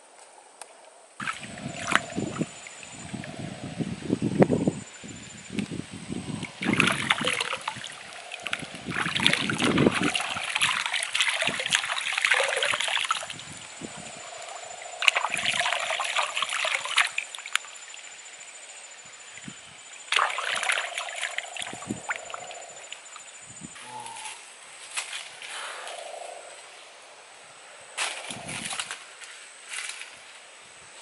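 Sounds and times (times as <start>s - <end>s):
hands splashing in stream water: 1.2s - 2.5s, 6.5s - 13.4s, 15.0s - 17.7s, 20.1s - 22.3s, 28.0s - 29.0s.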